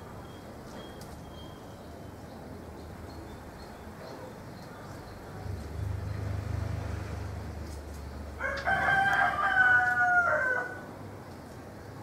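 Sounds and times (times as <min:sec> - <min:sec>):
rooster crowing: 0:08.4 - 0:10.9.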